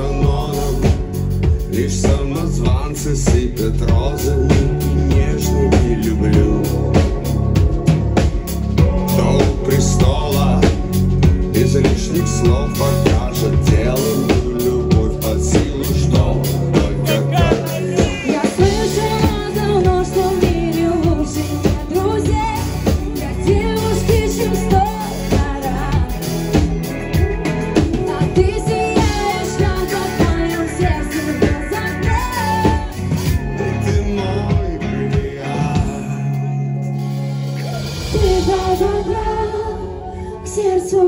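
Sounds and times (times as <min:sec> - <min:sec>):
drum beat: 0:00.0 - 0:36.0
bass: 0:00.0 - 0:41.0
electric guitar: 0:00.0 - 0:41.0
woman singing into microphone: 0:16.9 - 0:36.1, 0:37.7 - 0:41.0.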